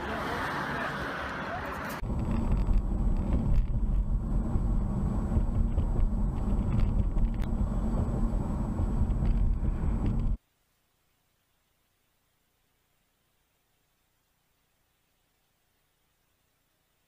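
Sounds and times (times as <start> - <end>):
car driving road rumble: 0.0 - 10.4.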